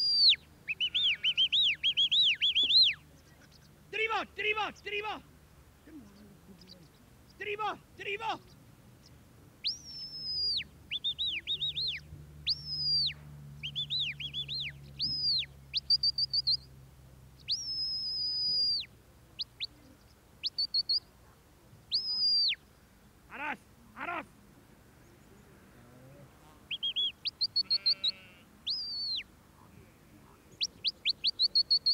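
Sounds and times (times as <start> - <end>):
shepherd's whistle calls: 0.0 - 3.0, 9.6 - 16.7, 17.5 - 18.9, 20.4 - 21.1, 21.9 - 22.6, 26.7 - 29.3, 30.6 - 31.9.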